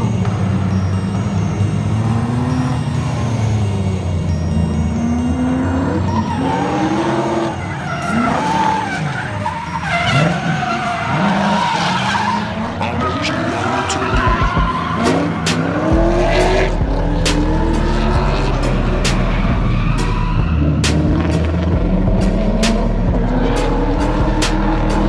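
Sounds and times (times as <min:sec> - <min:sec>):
car engines revving: 0:00.0 - 0:25.0
tyres squealing: 0:06.0 - 0:21.4.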